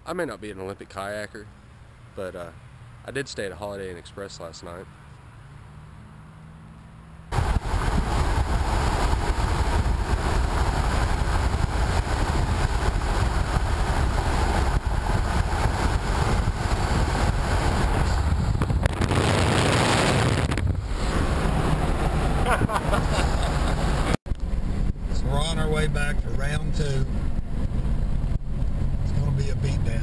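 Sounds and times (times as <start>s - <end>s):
road and tyre noise: 0.0s - 30.0s
wind rushing over camera: 7.3s - 25.2s, 27.1s - 29.2s.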